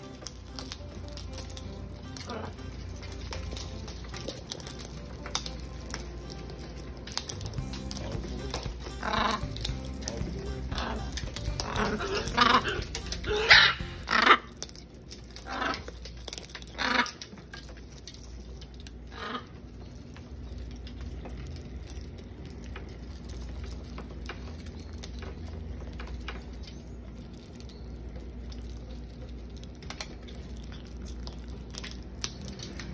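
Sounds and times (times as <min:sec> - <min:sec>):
beak clicks and nibbling: 0:00.0 - 0:32.9
macaws squawking: 0:08.1 - 0:14.6.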